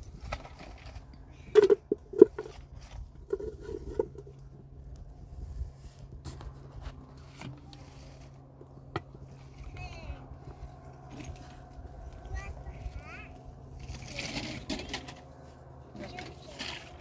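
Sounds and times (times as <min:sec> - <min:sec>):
low steady hum: 0:00.0 - 0:17.0
objects knocking and scraping: 0:00.1 - 0:04.4, 0:13.8 - 0:15.3, 0:15.9 - 0:17.0.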